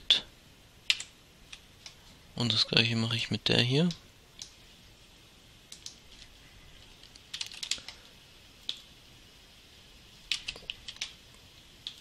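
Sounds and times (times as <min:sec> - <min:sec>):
computer keyboard keystrokes: 0:00.9 - 0:02.0, 0:07.0 - 0:08.0, 0:10.3 - 0:11.1.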